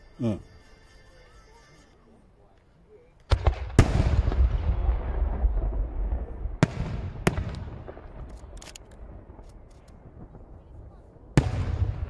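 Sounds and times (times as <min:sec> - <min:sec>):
firework bangs: 0:03.3 - 0:12.0
low rumble: 0:03.5 - 0:11.4.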